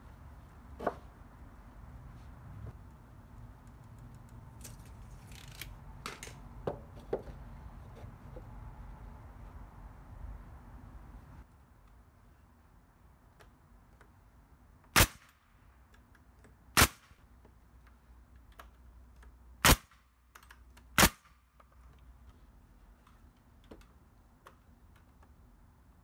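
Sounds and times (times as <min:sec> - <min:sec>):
nail gun firing: 0:15.0 - 0:15.4, 0:16.8 - 0:17.1, 0:19.6 - 0:20.0, 0:21.0 - 0:21.4.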